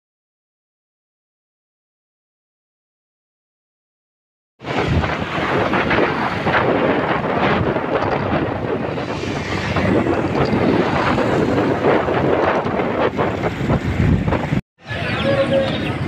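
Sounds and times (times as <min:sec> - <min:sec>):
road noise: 0:04.6 - 0:16.0
wind buffeting microphone: 0:04.6 - 0:16.0.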